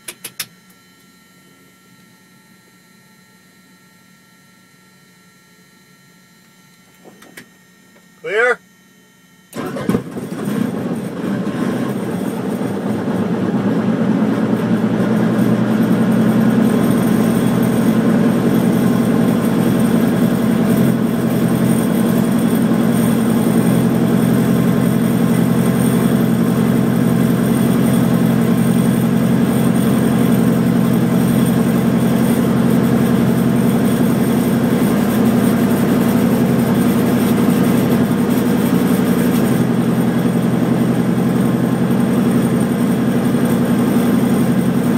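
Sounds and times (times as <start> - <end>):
helicopter engine running: 9.6 - 44.9.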